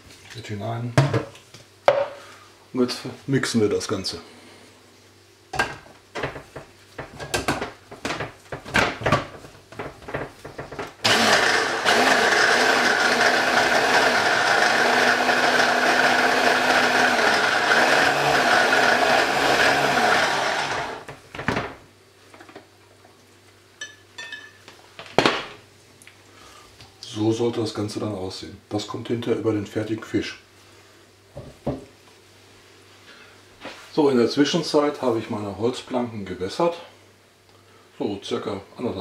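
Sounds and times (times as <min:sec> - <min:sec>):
stick blender humming: 0:11.0 - 0:21.1.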